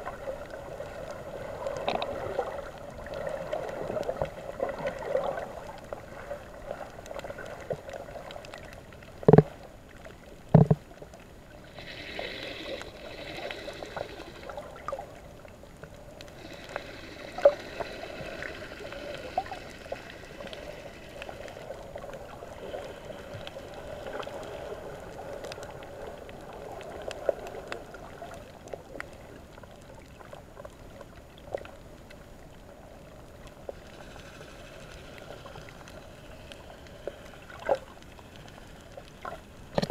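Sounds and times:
muffled underwater bubbling: 0:00.0 - 0:09.6, 0:10.4 - 0:29.3
faint clicks: 0:00.4 - 0:06.0, 0:12.4 - 0:39.9.

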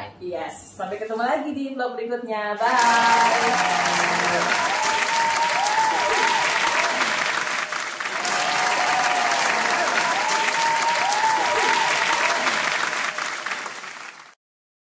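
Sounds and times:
crowd applauding and cheering: 0:02.6 - 0:14.4.

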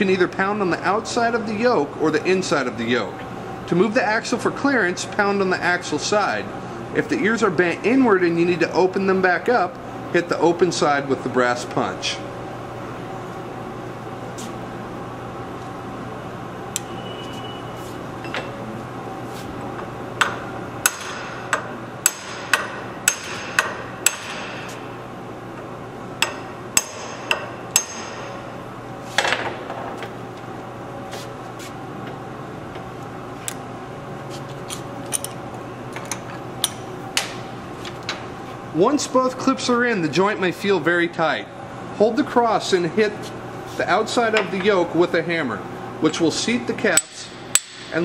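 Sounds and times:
punch hammered on steel: 0:20.8 - 0:24.7, 0:26.2 - 0:28.3, 0:47.0 - 0:47.9.

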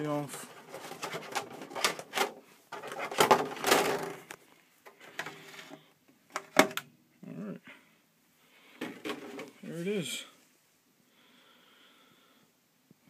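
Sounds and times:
plastic scraping rustle: 0:00.0 - 0:05.8.

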